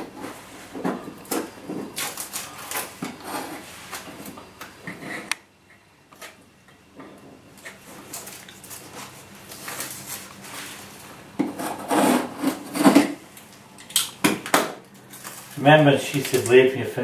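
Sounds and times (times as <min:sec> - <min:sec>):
scraping and rubbing of sheet: 0:02.4 - 0:04.1, 0:08.8 - 0:13.1
knife cutting vinyl flooring: 0:11.4 - 0:13.2.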